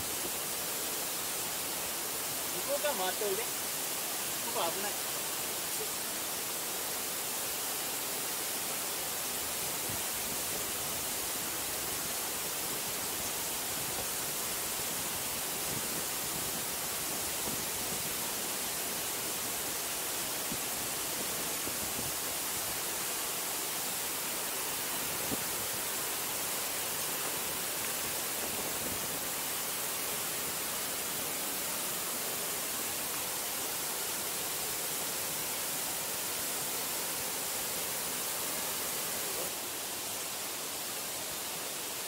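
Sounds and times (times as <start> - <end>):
large waterfall rushing: 0.0 - 42.0.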